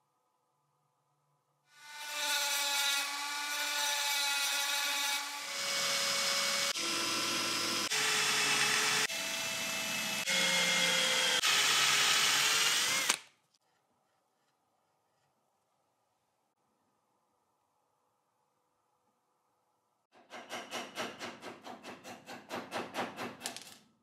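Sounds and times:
drill bit grinding on metal: 4.6 - 13.2.

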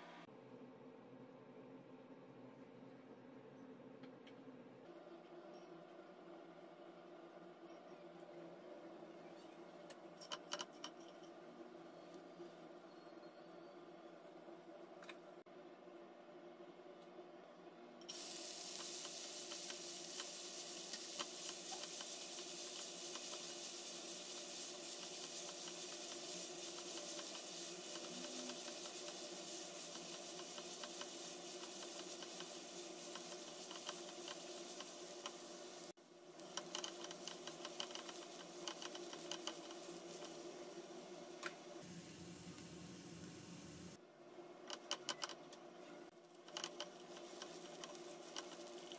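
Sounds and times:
onions sizzling in hot oil: 18.1 - 42.4, 46.2 - 48.9.

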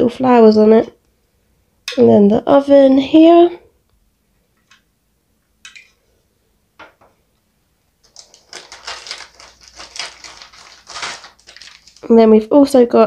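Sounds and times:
plastic bag crinkling: 8.0 - 12.3.

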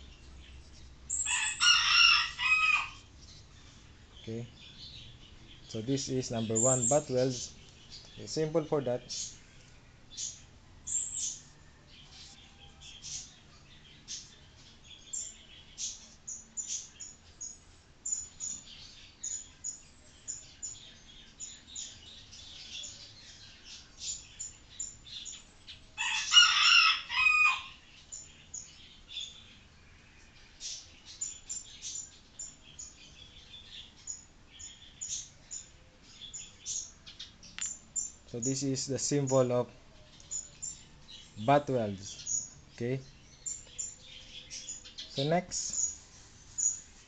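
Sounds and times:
loud bird call: 1.1 - 3.1, 26.0 - 27.8.

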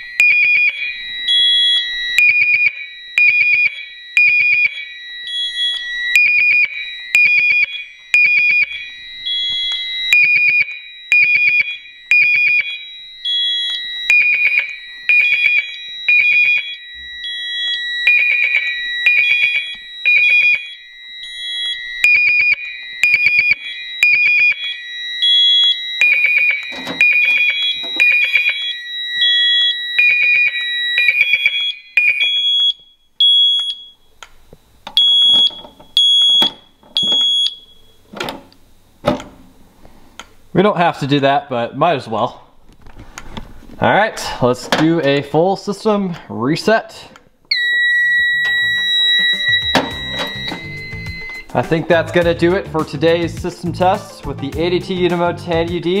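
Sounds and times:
fire alarm horn blasts: 0.0 - 34.0, 35.0 - 38.0, 47.5 - 54.2
steady high alarm tones: 0.0 - 39.8, 40.4 - 56.0.

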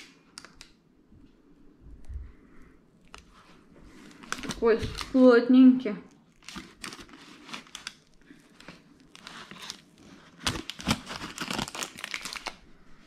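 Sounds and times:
crumbs and parchment crackling: 3.0 - 13.0.

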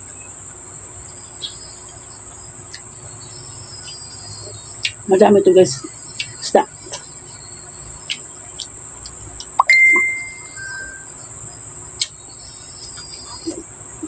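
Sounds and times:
insects chirring: 0.0 - 14.0
eating clicks: 4.8 - 7.1, 8.0 - 10.2, 12.0 - 12.2
whistle-like tone: 9.6 - 11.3.

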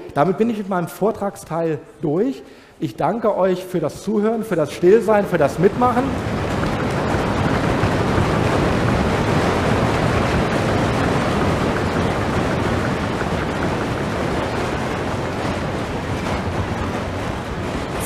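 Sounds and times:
children applauding: 5.2 - 18.0.

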